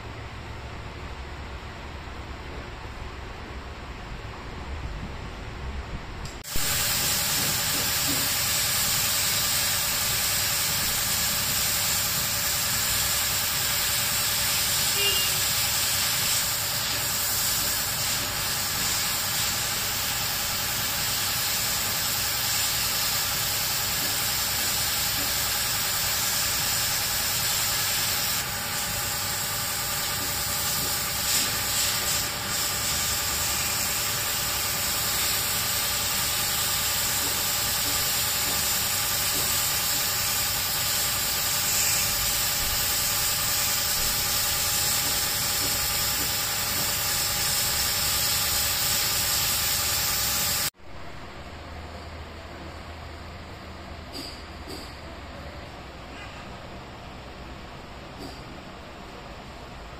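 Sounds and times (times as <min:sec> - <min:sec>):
pump motor drone: 0:06.5 - 0:31.6, 0:32.3 - 0:50.7
pressure washer water jet hissing: 0:06.5 - 0:50.7.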